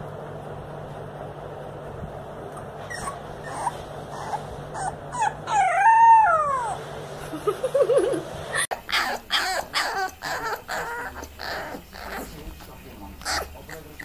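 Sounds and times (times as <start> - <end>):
puppy yipping: 2.5 - 6.8, 8.7 - 14.0
puppy howling: 2.8 - 6.8, 8.7 - 14.0.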